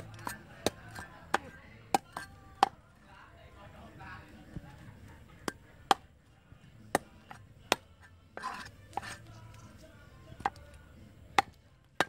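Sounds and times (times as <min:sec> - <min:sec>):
knife chopping fish: 0:06.9 - 0:09.2
knife blade scraping: 0:08.4 - 0:09.8.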